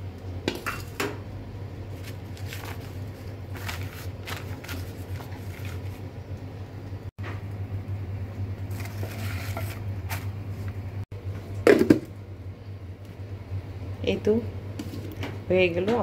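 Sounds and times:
steady low hum: 0.0 - 16.0
paper towel rustling and crinkling: 1.9 - 6.1.

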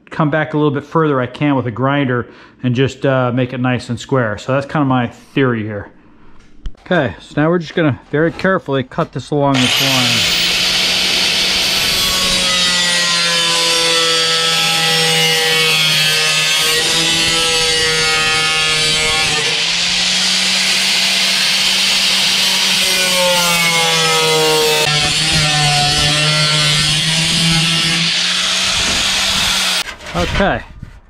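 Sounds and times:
angle grinder cutting metal: 9.5 - 29.9.

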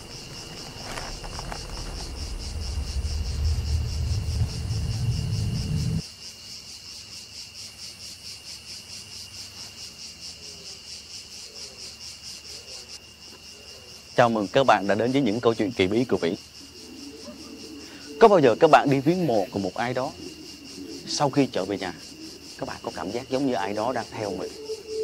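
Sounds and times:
crickets chirping: 0.0 - 25.0
low rumble: 0.8 - 6.0.

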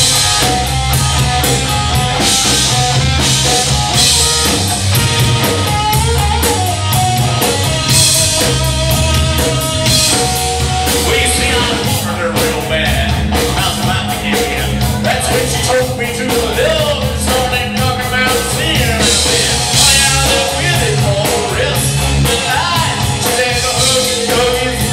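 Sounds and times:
drum kit: 0.0 - 24.9
electric bass: 0.0 - 24.9
electric guitar: 0.0 - 24.9
person singing: 8.9 - 24.9.

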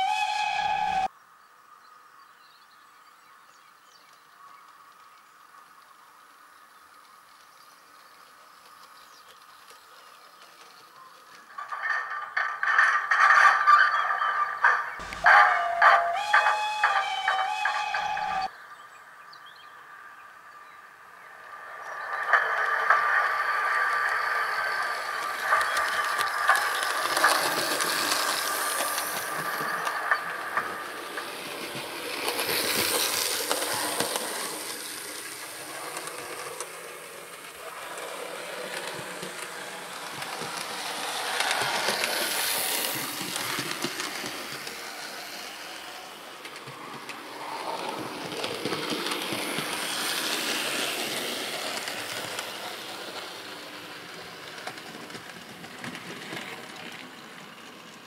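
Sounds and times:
wheels clicking over rail joints: 3.9 - 18.5, 21.6 - 58.0
model train motor whirring: 23.8 - 58.0.

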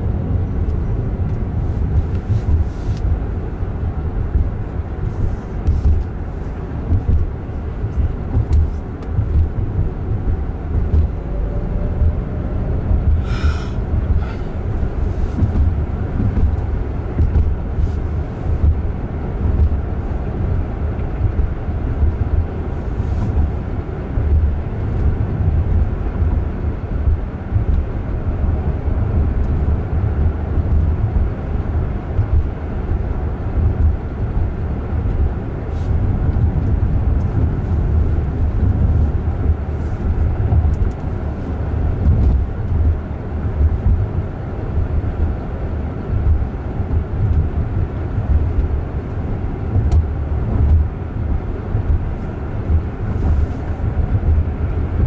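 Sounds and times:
car road and tyre noise: 0.0 - 55.0.

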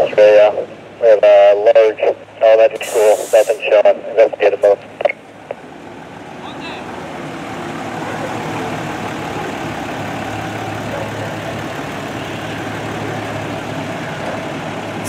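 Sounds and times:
fire engine idling: 0.0 - 15.0
pickup truck driving past: 5.2 - 15.0.

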